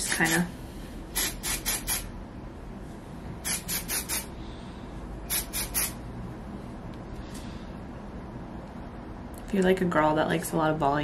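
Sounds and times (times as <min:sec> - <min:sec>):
aerosol spray hissing puffs: 0:01.1 - 0:02.1, 0:03.4 - 0:04.3, 0:05.3 - 0:06.0.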